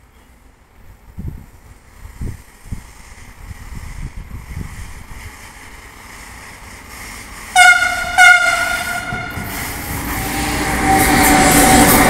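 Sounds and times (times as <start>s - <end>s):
freight train rumbling: 0.0s - 12.0s
locomotive horn blasts: 7.6s - 9.5s.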